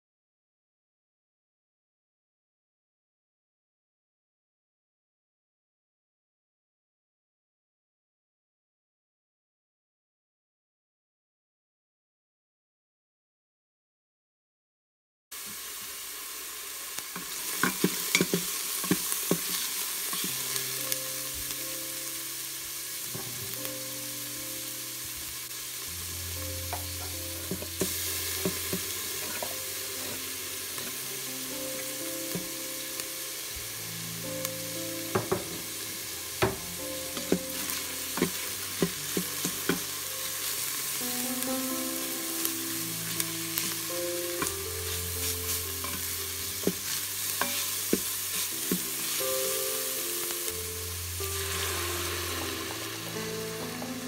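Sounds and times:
onion and garlic sizzling in oil: 15.3s - 54.0s
soft background music: 17.4s - 54.0s
wooden spoon scraping a pot: 17.6s - 20.3s, 44.4s - 49.2s.

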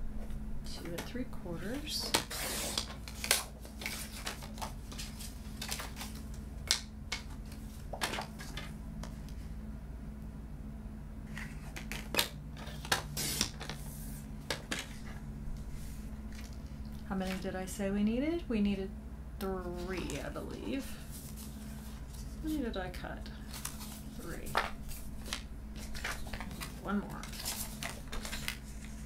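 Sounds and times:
steady low hum: 0.0s - 29.0s
paper being handled: 23.4s - 29.0s.

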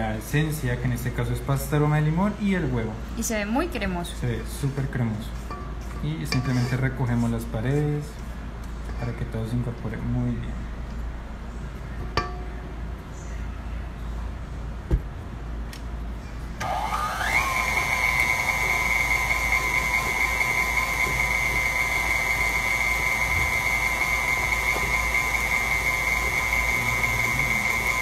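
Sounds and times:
stand mixer motor whining: 16.6s - 28.0s.

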